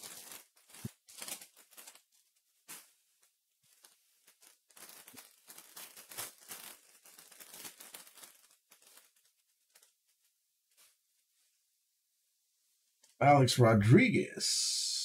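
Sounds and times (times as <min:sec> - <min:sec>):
foil wrapper crinkling and tearing: 0:00.0 - 0:10.2.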